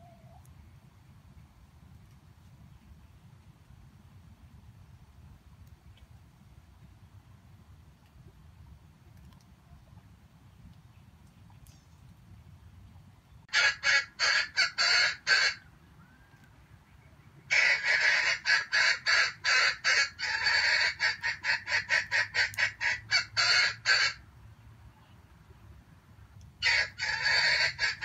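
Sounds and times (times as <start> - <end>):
junglefowl cackling: 13.5 - 16.4, 17.5 - 24.2, 26.6 - 28.0.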